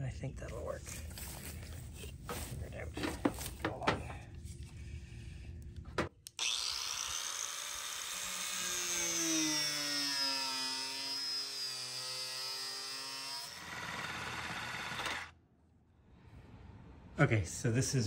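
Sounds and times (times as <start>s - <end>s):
power tool cutting metal: 6.4s - 15.3s.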